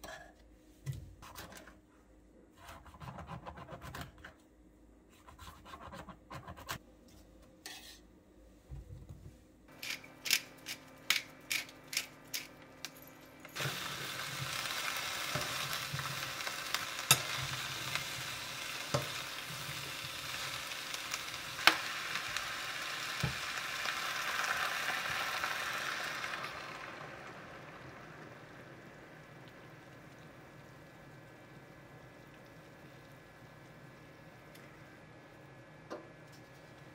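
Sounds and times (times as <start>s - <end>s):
vegetables sizzling in frying pan: 13.6s - 29.4s.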